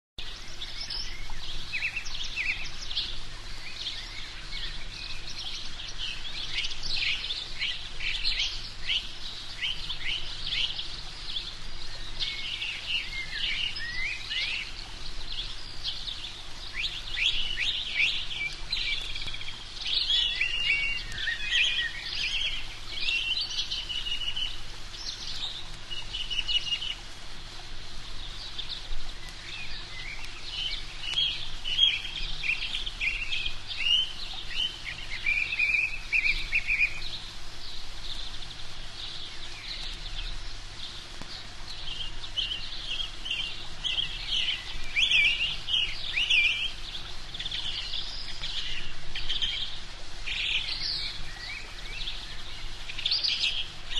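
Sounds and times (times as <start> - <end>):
birds chirping and singing: 0.2 - 27.0, 28.2 - 53.9.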